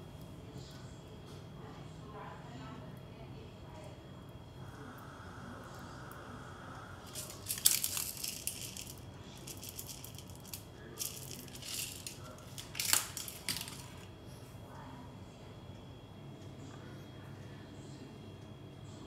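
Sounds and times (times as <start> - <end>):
crunching and rattling handling noise: 7.1 - 14.1.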